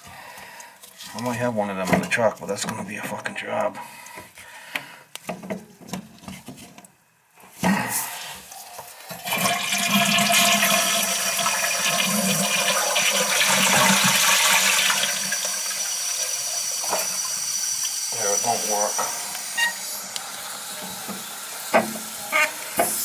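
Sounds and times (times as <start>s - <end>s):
toilet flushing and refilling: 8.0s - 23.0s.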